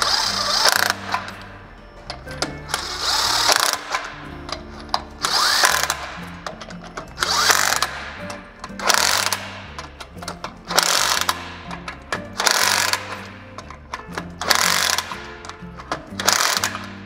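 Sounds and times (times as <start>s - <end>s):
background music: 0.0s - 17.0s
power driver motor whine: 2.4s - 9.6s.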